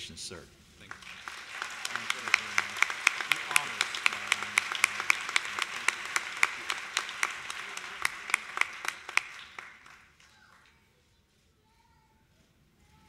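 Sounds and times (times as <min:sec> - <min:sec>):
audience applauding: 0:00.9 - 0:10.8.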